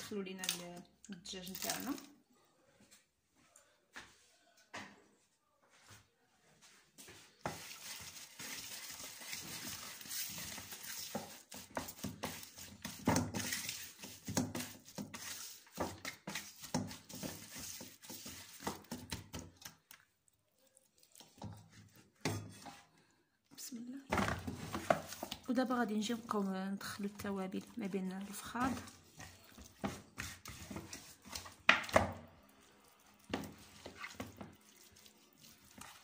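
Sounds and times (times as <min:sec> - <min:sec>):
fingers squishing wet herbs: 0:07.5 - 0:21.4.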